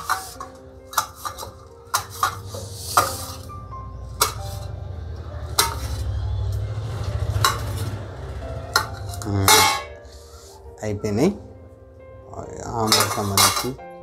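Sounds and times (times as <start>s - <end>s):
ringing metal clatter: 8.8s - 10.0s.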